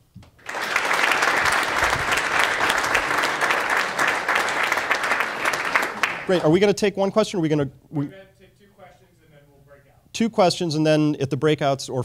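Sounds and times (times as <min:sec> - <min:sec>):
audience applauding: 0:00.4 - 0:06.6.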